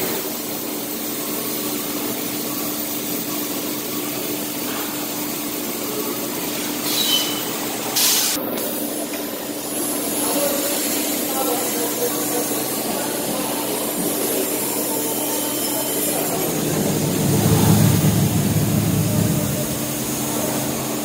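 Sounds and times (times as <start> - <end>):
roller conveyor hum: 0.0 - 21.0.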